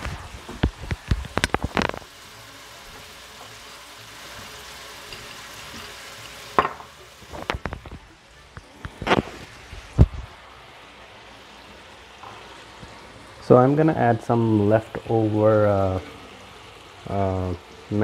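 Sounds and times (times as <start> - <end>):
sharp spattering crackles: 0.0 - 2.1
chicken sizzling in frying pan: 0.0 - 18.0.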